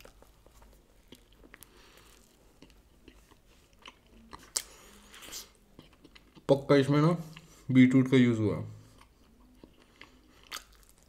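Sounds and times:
person chewing food: 0.0 - 6.5, 8.8 - 11.0.

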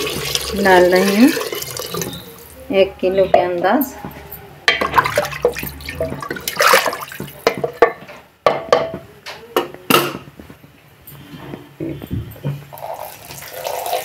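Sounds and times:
liquid sloshing: 4.8 - 7.9.

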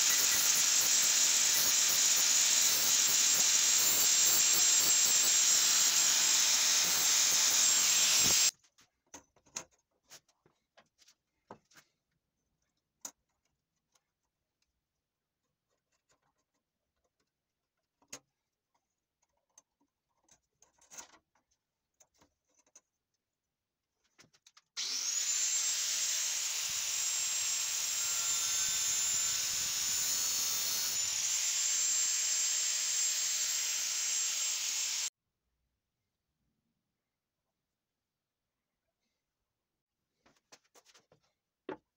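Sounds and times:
angle grinder cutting steel: 0.0 - 8.5, 24.8 - 35.1.

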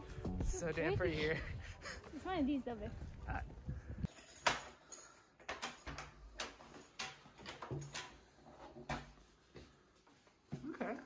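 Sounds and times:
footsteps indoors: 6.2 - 11.0.

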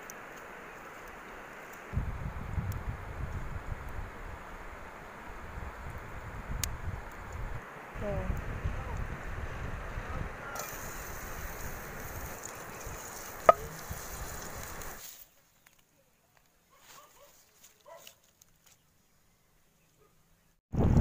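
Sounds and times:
steady outdoor hiss: 0.0 - 20.6
wind buffeting microphone: 1.9 - 15.0, 20.7 - 21.0.

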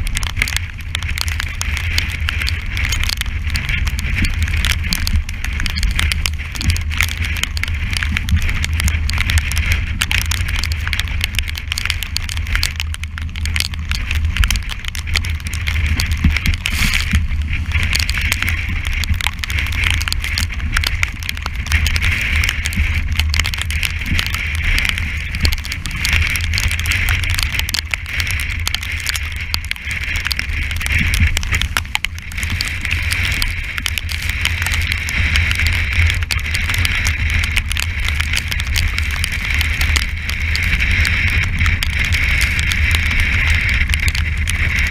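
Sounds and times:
crackle of clicks and knocks: 0.0 - 44.9
wind buffeting microphone: 0.0 - 44.9.

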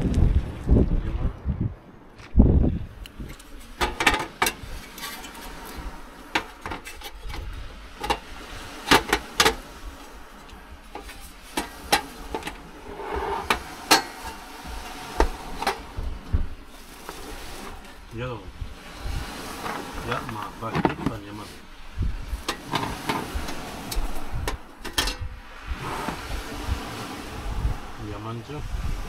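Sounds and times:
heavy low thump: 14.6 - 16.6.

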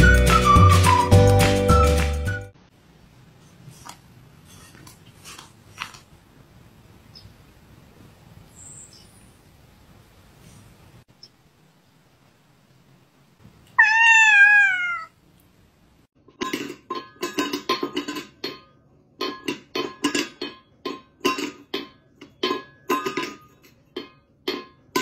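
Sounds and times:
cat meowing: 13.7 - 15.2.

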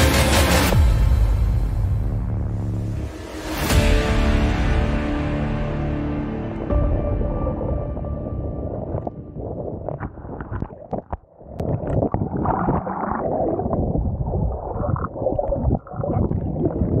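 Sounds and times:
muffled underwater water rushing: 6.4 - 17.0
water splashes: 7.7 - 17.0
bubbling crackles: 8.6 - 17.0.

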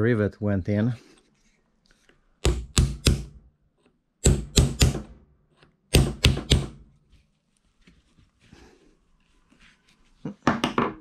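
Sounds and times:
hammer tapping nail set: 2.4 - 3.4.

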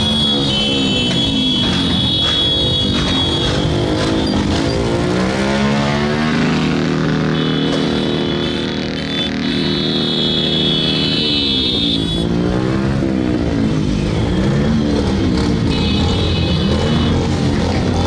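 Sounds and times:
motorcycle engines passing by: 0.0 - 18.0.

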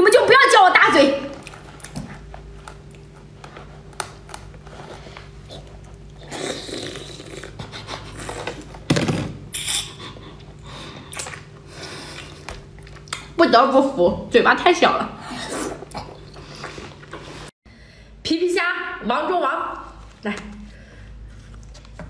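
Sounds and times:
steady low hum: 0.0 - 22.0
person chewing food: 1.4 - 8.8, 9.6 - 13.3.

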